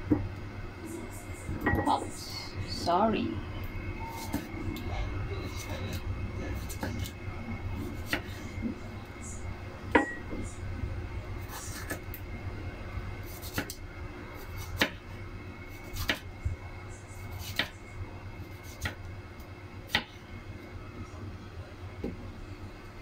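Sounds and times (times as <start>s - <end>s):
knife slicing tomato: 13.2s - 13.8s, 15.7s - 16.3s, 17.2s - 17.8s.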